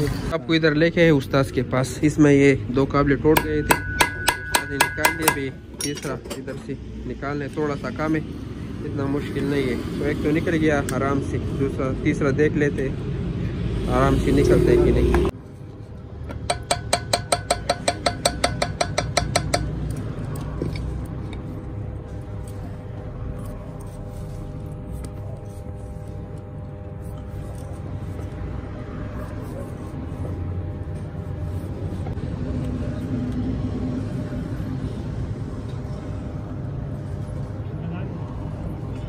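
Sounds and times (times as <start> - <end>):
vehicle engine humming: 0.0 - 39.0
higher tone: 3.3 - 5.7
hammer striking steel: 3.3 - 6.5, 16.3 - 19.9.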